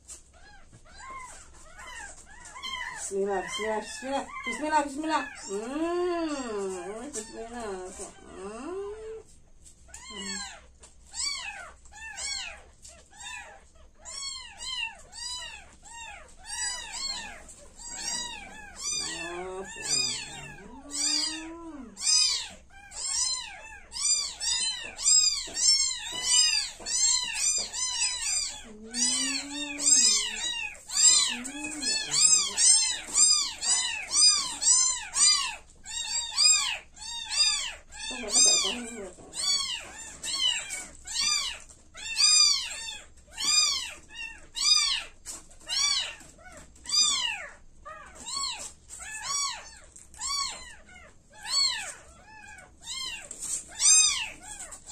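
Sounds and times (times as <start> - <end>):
kittens mewing: 0.0 - 9.3, 9.9 - 54.9.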